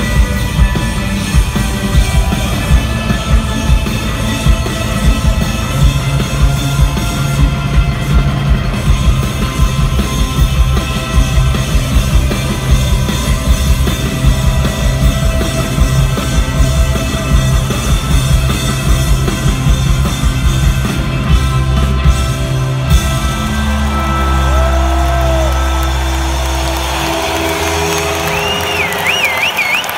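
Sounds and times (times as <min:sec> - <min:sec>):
drum kit beat: 0:00.0 - 0:23.9
rock band playing live: 0:00.0 - 0:29.9.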